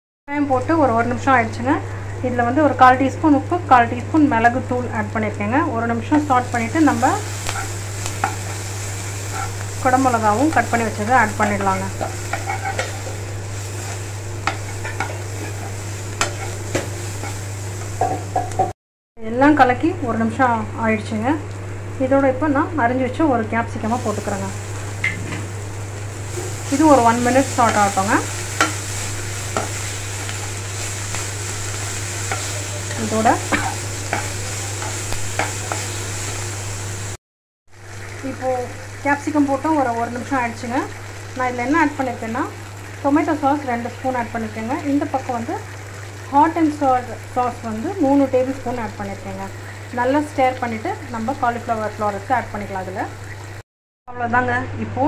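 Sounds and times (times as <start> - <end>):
onions sizzling in oil: 0.3 - 18.7, 20.3 - 53.6
metal spoon scraping a pan: 9.2 - 9.6, 12.0 - 13.2, 13.8 - 17.4, 28.5 - 35.9
spatula knocking and scraping pan: 11.5 - 13.2, 13.8 - 17.4, 18.0 - 18.7, 29.5 - 30.5.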